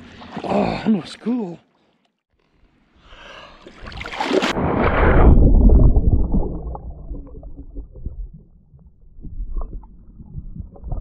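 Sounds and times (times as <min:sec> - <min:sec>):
splash into water: 0:03.7 - 0:08.3
muffled underwater rumbling: 0:04.6 - 0:11.0.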